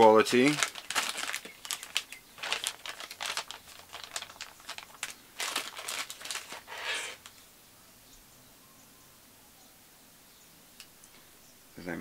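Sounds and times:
plastic bags crinkling: 0:00.0 - 0:07.3.

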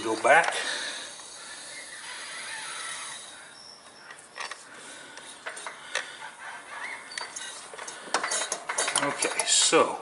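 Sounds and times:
engine turned over by hand: 0:07.2 - 0:09.6
metallic clicks and rattling: 0:07.2 - 0:09.8.

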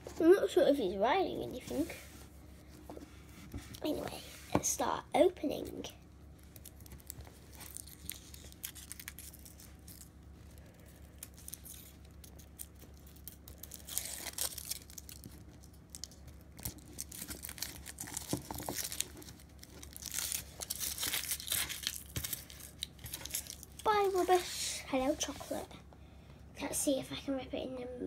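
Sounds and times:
foil wrapper crinkling and tearing: 0:06.3 - 0:24.6.

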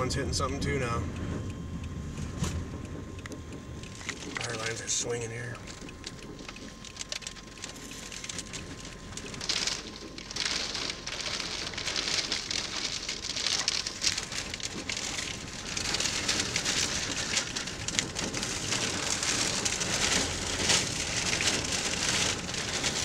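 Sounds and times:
heavy rain: 0:08.2 - 0:23.0.

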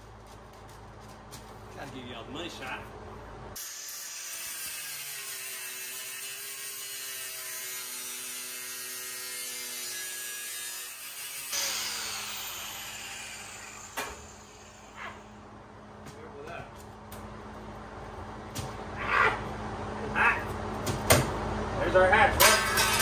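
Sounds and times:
angle grinder motor whine: 0:11.5 - 0:15.4.

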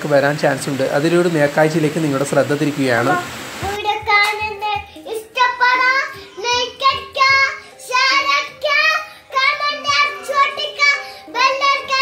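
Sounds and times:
boy singing: 0:03.6 - 0:12.0.

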